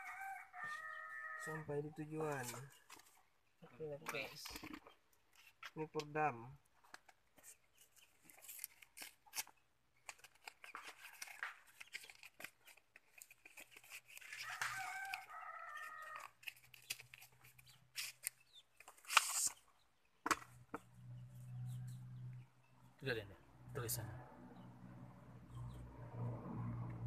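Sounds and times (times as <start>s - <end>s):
chicken calling: 0.0s - 1.6s
cardboard packaging rustling: 7.0s - 19.6s.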